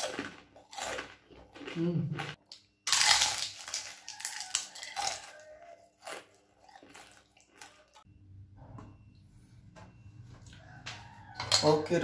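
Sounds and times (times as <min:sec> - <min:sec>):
crunching fried food: 0:00.0 - 0:08.1.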